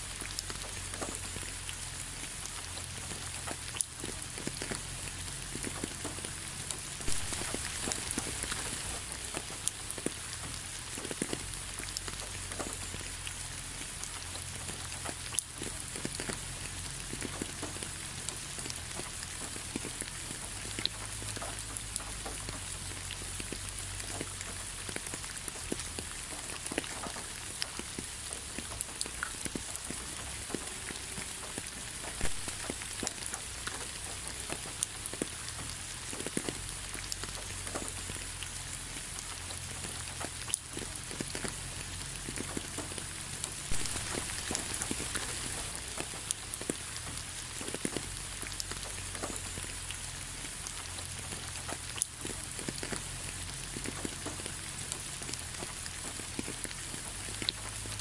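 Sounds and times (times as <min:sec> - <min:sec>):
raindrops ticking sharply: 0:00.0 - 0:58.0
steady rain falling: 0:00.0 - 0:58.0.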